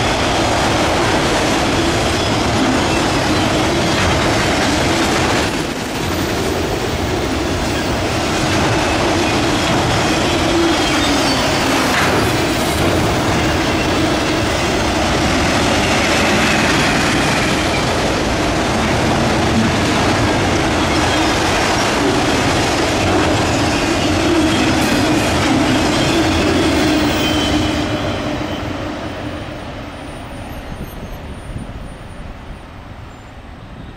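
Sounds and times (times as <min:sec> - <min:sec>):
freight train wheels on rails: 0:00.0 - 0:33.9
wheels squealing: 0:08.8 - 0:14.5.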